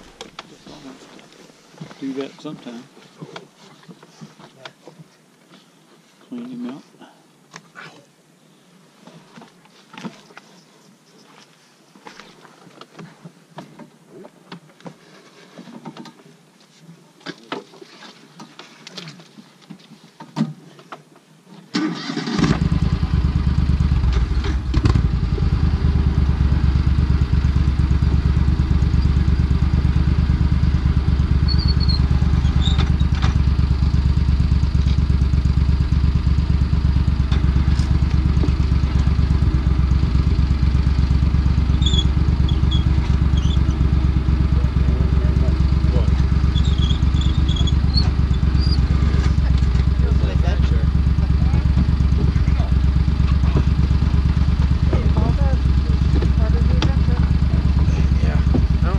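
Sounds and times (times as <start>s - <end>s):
vehicle engine starting and running: 21.7s - 58.9s.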